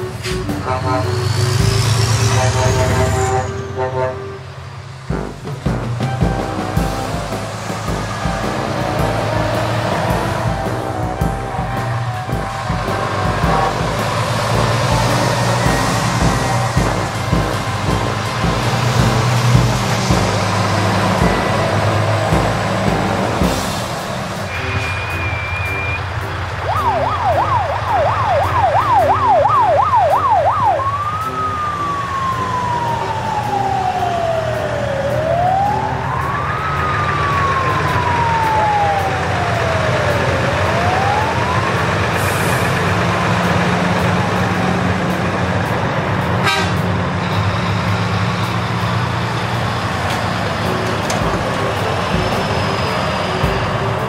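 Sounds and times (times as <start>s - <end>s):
toy fire truck siren: 0.0s - 4.6s, 24.5s - 45.2s.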